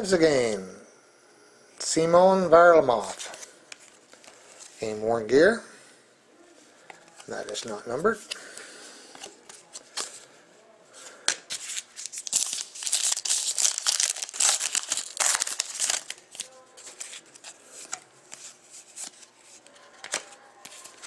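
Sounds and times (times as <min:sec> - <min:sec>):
foil wrapper tearing and crinkling: 0:11.6 - 0:17.3.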